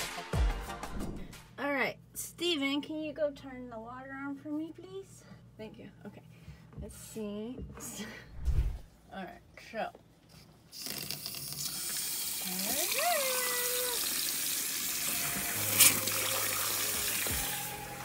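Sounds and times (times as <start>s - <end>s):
low hum: 8.3s - 8.9s
faucet water splashing into sink: 10.8s - 17.7s.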